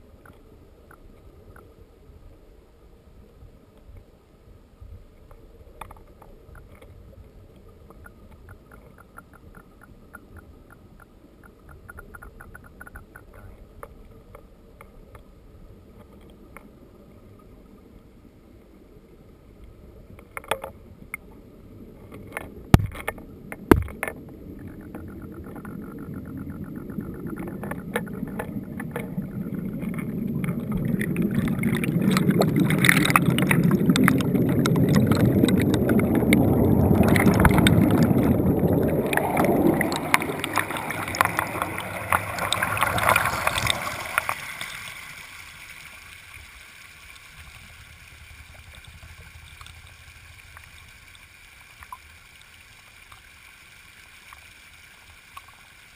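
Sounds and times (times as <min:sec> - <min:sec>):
muffled underwater creek rush: 0:00.0 - 0:55.9
bubbly water flow over cobbles: 0:20.0 - 0:55.9.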